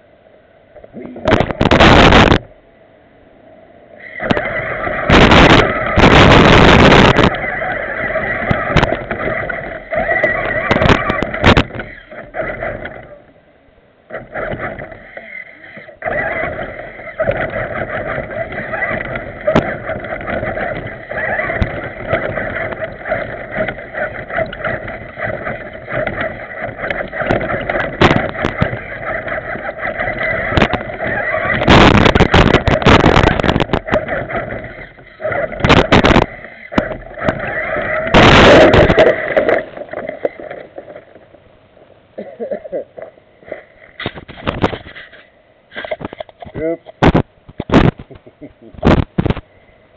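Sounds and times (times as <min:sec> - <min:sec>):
rattling and scraping: 0:00.8 - 0:02.4, 0:04.2 - 0:13.3, 0:14.1 - 0:41.9, 0:43.0 - 0:49.4
electric motor and gears whining: 0:01.0 - 0:02.5, 0:04.0 - 0:13.4, 0:14.1 - 0:41.5.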